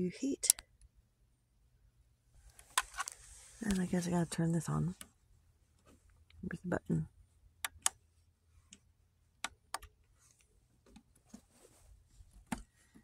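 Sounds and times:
plastic buttons clicking: 7.6 - 8.0.

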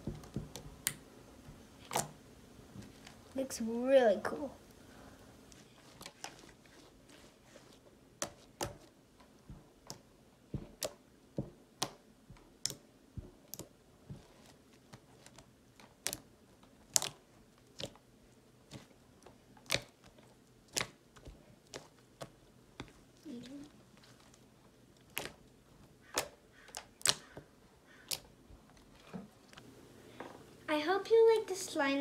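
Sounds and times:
slime squished by hand: 11.7 - 18.1, 19.6 - 29.0.

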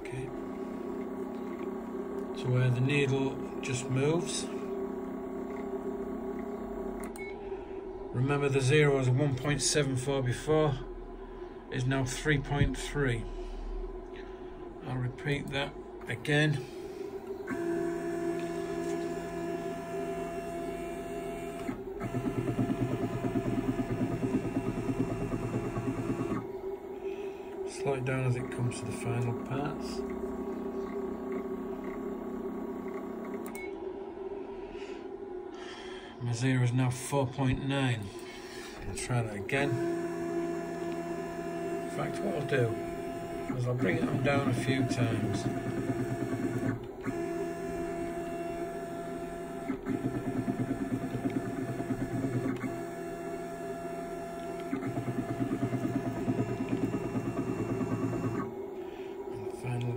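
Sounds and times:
stepper motor whine: 0.0 - 34.7, 38.4 - 59.9
motor stopping click: 17.2 - 26.5, 39.7 - 58.6.

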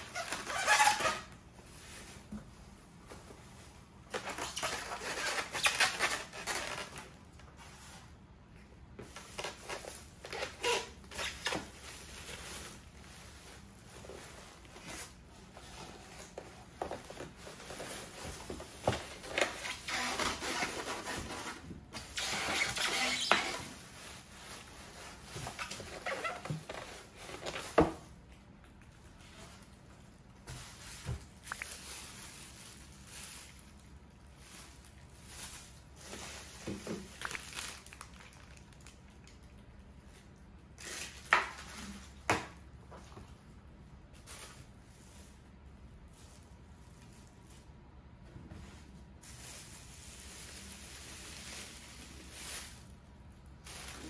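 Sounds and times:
plastic bag crinkling: 3.5 - 8.4, 9.0 - 42.2, 49.0 - 54.0.

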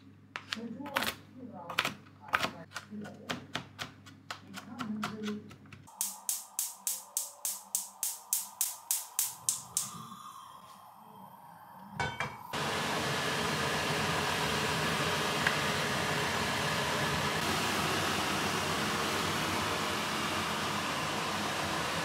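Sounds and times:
gas burner hissing: 5.9 - 22.0
gas igniter clicking: 6.0 - 10.0.

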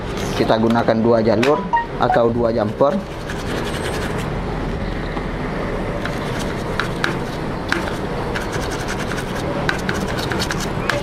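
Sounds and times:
stiff brush scrubbing circuit board: 2.5 - 4.3.

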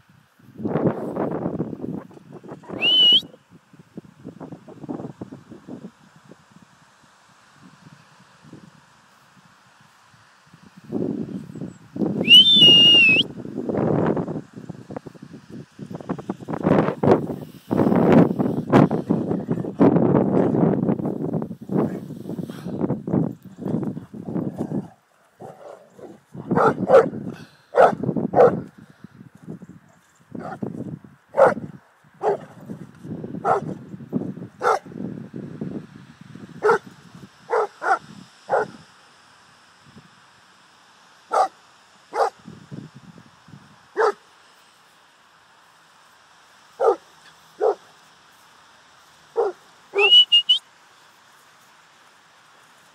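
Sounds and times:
dog barking: 26.5 - 27.2, 27.8 - 28.6, 31.4 - 32.5, 33.4 - 33.7, 34.6 - 34.9, 36.6 - 36.8, 37.5 - 38.8, 41.3 - 41.5, 42.1 - 42.4, 44.0 - 44.2, 46.8 - 47.0, 47.6 - 47.8, 49.4 - 49.6.

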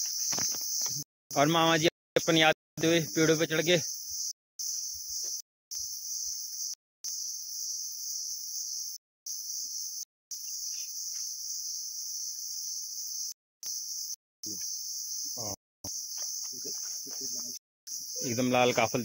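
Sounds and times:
insects buzzing: 0.0 - 19.0.

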